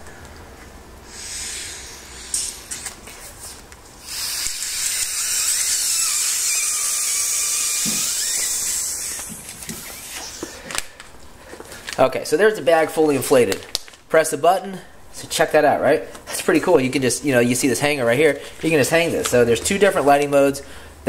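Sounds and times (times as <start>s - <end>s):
air hissing into inflatable bag: 1.0s - 2.9s, 7.8s - 10.7s
plastic rustling: 9.2s - 12.2s, 13.0s - 14.1s.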